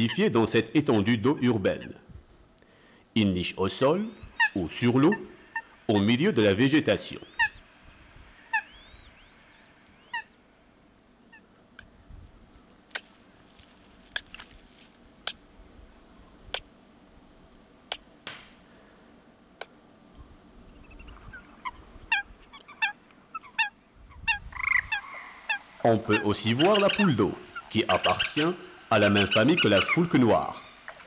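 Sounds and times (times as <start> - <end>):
coots calling: 0.0 - 2.0, 3.7 - 10.6, 11.2 - 11.9, 20.6 - 31.0.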